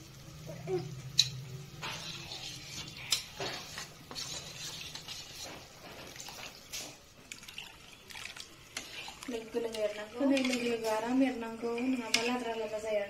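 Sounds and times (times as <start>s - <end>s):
liquid sounds and spoon scraping: 1.2s - 11.1s.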